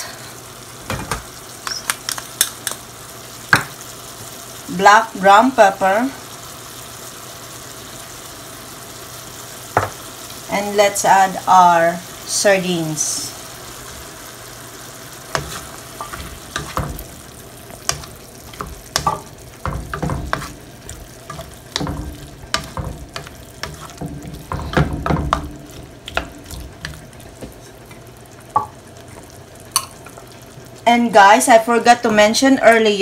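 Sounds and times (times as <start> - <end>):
food sizzling: 0.0 - 33.0
utensil scraping frying pan: 15.1 - 30.2.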